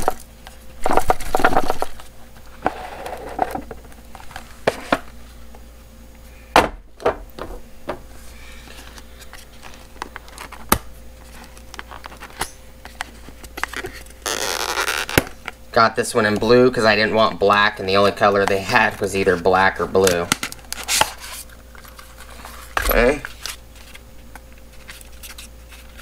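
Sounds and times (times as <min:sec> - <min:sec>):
cardboard packaging rustling: 0:08.1 - 0:15.5.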